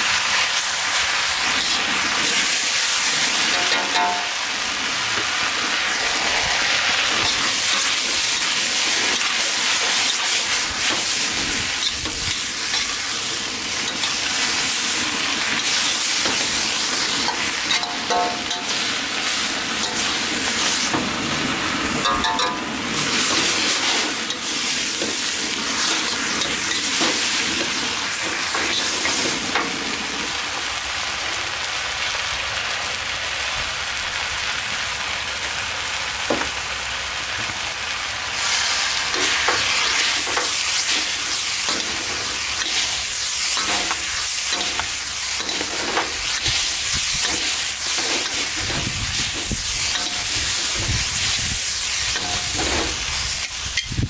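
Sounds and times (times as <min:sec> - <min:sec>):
noodles sizzling in a wok: 0:00.0 - 0:54.0
spatula scraping a wok: 0:05.2 - 0:21.1, 0:23.0 - 0:29.6, 0:38.4 - 0:54.0.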